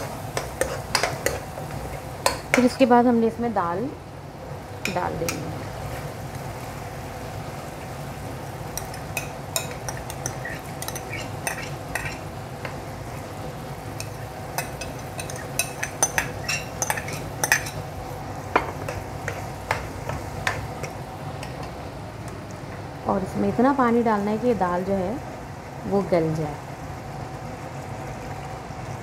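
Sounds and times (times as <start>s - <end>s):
ladle scraping and clinking on glass: 9.6s - 12.2s, 14.6s - 17.8s.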